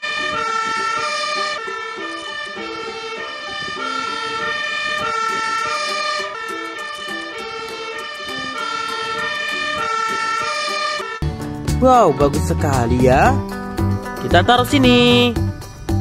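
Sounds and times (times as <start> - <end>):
fire engine two-tone siren: 0.0 - 11.2.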